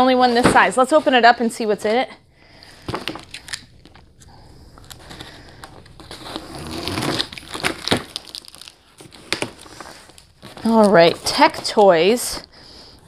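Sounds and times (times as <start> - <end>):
crinkling: 0.0 - 13.0.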